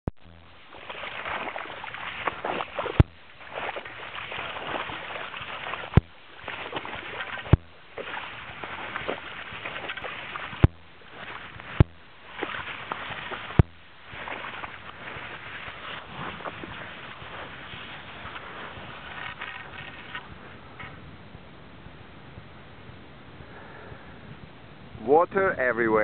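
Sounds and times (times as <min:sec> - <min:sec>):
footsteps in wet slush: 0:00.2 - 0:21.0.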